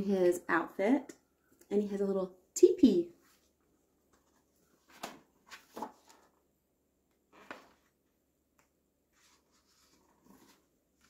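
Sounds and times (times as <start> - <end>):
book pages turning: 4.1 - 6.4, 8.6 - 11.0.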